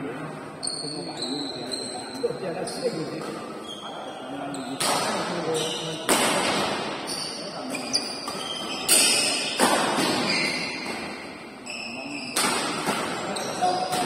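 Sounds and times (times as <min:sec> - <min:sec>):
short high squeaks: 0:00.6 - 0:02.9, 0:03.6 - 0:04.8, 0:07.0 - 0:14.0
rackets smacking shuttlecock: 0:06.0 - 0:07.0, 0:08.2 - 0:11.2, 0:12.4 - 0:14.0.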